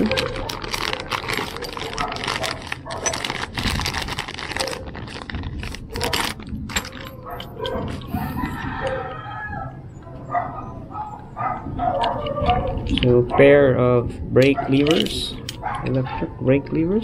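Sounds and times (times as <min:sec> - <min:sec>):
metal parts clinking: 0:00.0 - 0:05.3, 0:06.0 - 0:08.5, 0:11.9 - 0:13.4, 0:14.4 - 0:16.1
plastic bag crinkling: 0:00.0 - 0:08.7.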